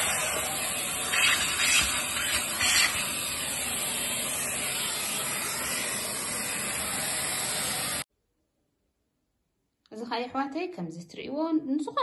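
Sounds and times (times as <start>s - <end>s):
steam cleaner hissing: 0.0s - 8.1s.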